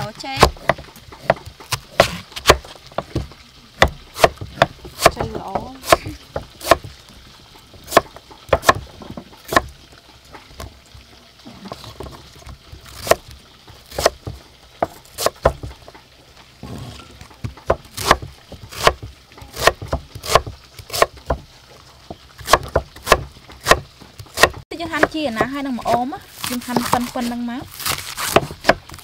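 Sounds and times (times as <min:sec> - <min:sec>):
knife chopping on wooden block: 0:00.4 - 0:06.9, 0:07.9 - 0:08.9, 0:13.9 - 0:15.7, 0:17.7 - 0:21.4, 0:22.4 - 0:26.0, 0:27.8 - 0:29.0.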